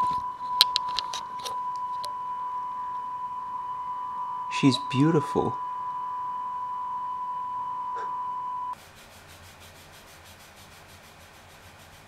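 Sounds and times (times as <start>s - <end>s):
steady test tone: 0.0s - 8.8s
rubbing noise with faint pulse: 8.8s - 12.0s.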